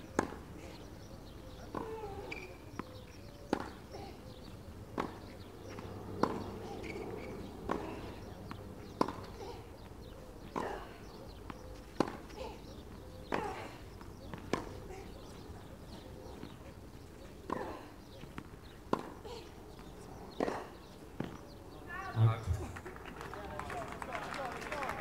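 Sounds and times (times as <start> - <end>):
tennis racket hitting ball: 17.5 - 19.2.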